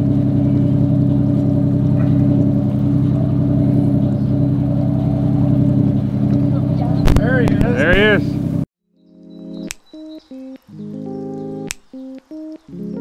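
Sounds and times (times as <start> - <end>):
boat engine droning: 0.0 - 9.6.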